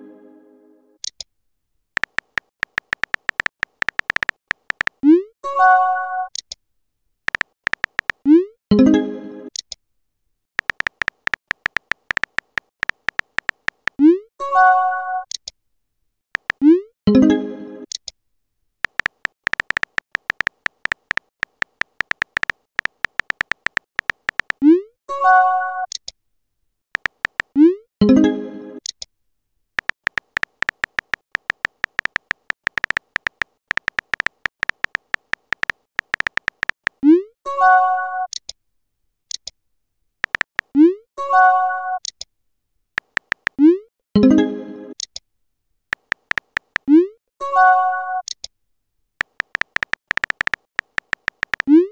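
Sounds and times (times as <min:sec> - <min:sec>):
keyboard tap clicks: 0:02.0 - 0:05.0, 0:07.3 - 0:08.2, 0:10.6 - 0:14.0, 0:16.4 - 0:16.6, 0:18.8 - 0:24.6, 0:27.0 - 0:27.6, 0:29.8 - 0:37.0, 0:40.2 - 0:40.7, 0:43.0 - 0:43.6, 0:45.9 - 0:46.9, 0:49.2 - 0:51.8.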